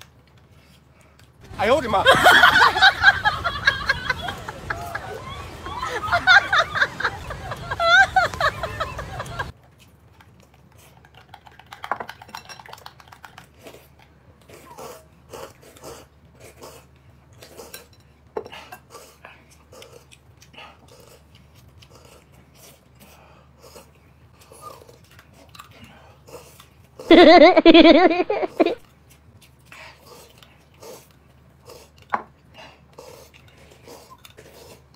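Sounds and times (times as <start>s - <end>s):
chewing: 0.0s - 1.4s, 9.2s - 27.1s, 28.8s - 34.9s
chopsticks and spoons clicking dishes: 11.0s - 13.4s.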